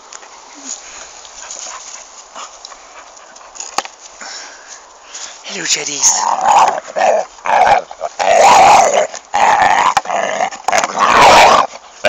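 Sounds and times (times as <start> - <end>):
dog play-growling: 6.1 - 12.0.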